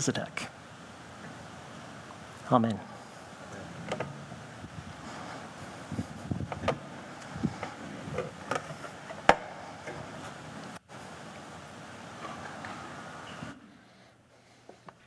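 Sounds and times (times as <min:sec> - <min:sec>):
room hiss: 0:00.0 - 0:15.0
shuffling: 0:02.9 - 0:13.6.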